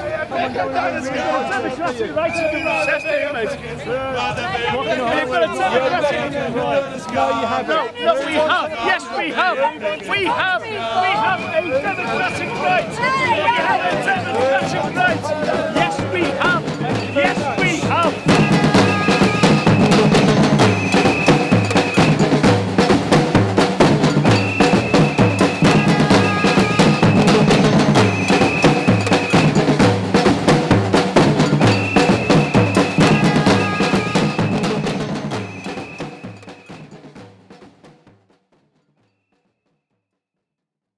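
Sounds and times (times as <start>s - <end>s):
drumming band: 10.2s - 38.9s
long high tone: 16.9s - 22.0s, 32.4s - 34.7s.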